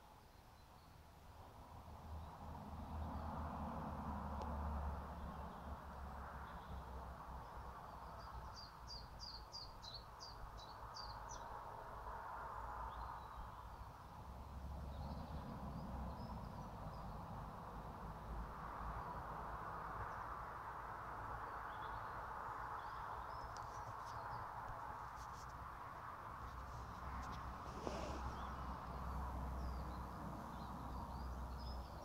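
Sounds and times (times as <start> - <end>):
songbird chirping: 0.0 - 11.8, 21.2 - 32.0
low outdoor rumble and hiss: 0.0 - 32.0.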